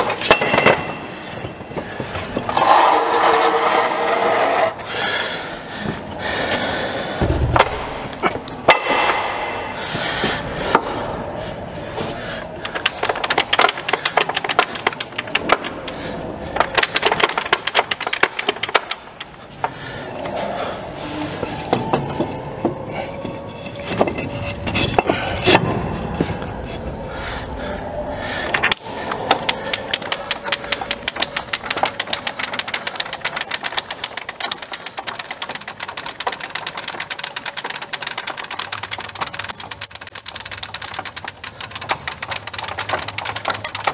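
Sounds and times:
ratchet wrench clicking rapidly: 12.6 - 16.0, 16.6 - 19.4, 28.7 - 43.9
metal clanks and clicking: 12.6 - 19.8, 28.5 - 43.9.

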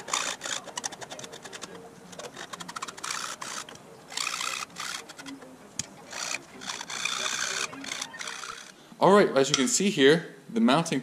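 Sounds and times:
hand file rasping on metal: 0.0 - 5.2, 6.1 - 8.8.

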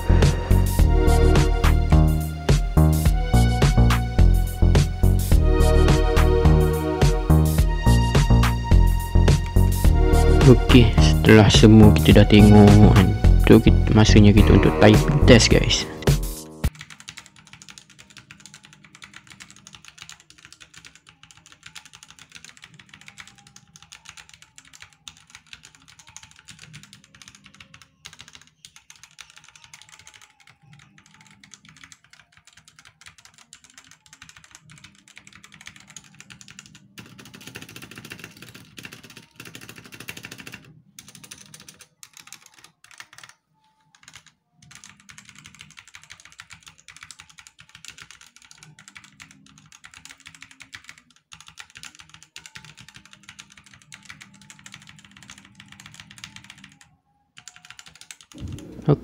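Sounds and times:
mechanical keyboard typing: 16.7 - 58.7.

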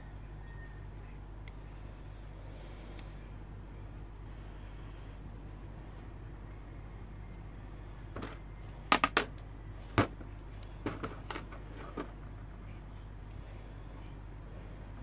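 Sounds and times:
low steady hum: 0.0 - 15.0
plastic pieces clicking and tapping: 8.2 - 12.1.

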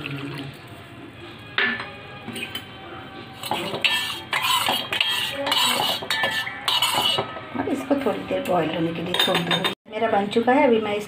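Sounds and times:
metal spoon scraping a steel pot: 1.7 - 7.5.

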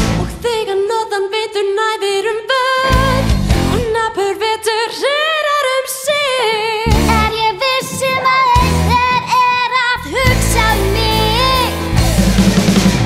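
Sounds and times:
rock band playing: 0.0 - 0.3, 2.9 - 3.9, 6.9 - 13.0
woman singing into microphone: 0.0 - 12.1.

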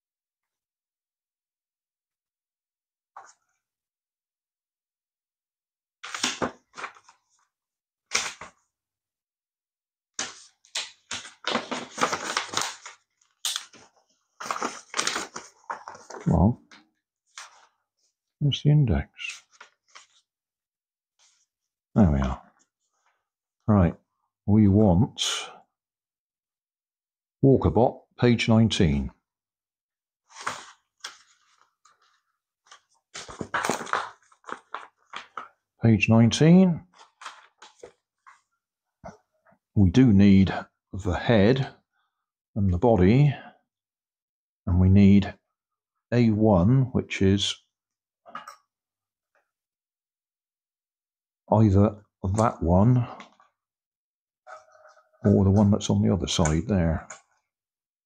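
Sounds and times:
paper pages rustling: 6.0 - 7.5, 8.1 - 8.7, 10.2 - 17.8, 19.3 - 20.3, 30.3 - 35.6, 36.9 - 38.5.

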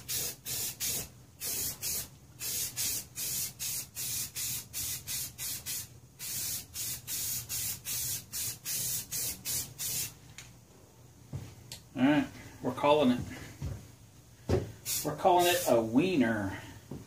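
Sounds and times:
spray can hissing bursts: 0.0 - 10.2, 14.8 - 15.8.

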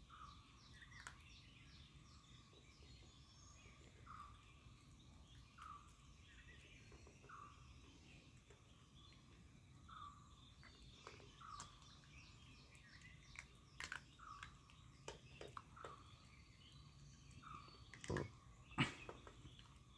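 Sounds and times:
birds chirping: 0.0 - 19.9
dog crunching dry kibble: 10.5 - 16.4.

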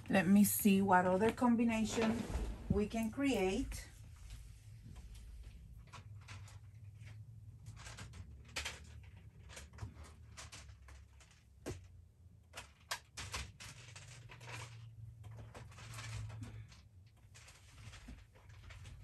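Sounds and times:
low steady hum: 0.0 - 13.3
plastic beads clicking and rustling: 12.5 - 19.0.

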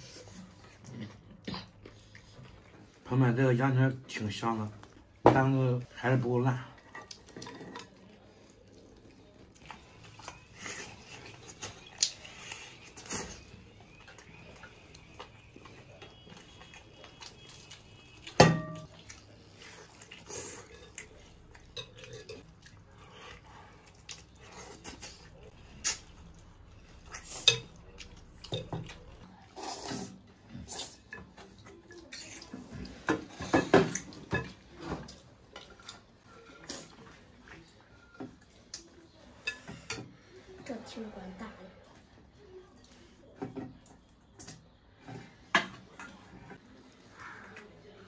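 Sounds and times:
quiet eating sounds: 0.0 - 48.0
tableware clinking: 18.4 - 18.9.

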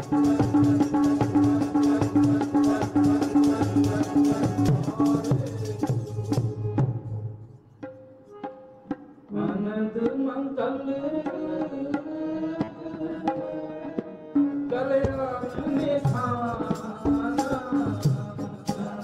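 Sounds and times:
tabla strokes: 0.0 - 10.3
harmonium chords: 0.0 - 19.0.

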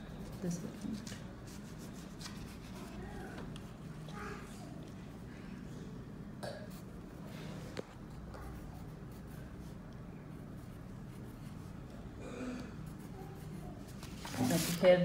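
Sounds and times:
pencil scratching on paper: 8.4 - 11.8.

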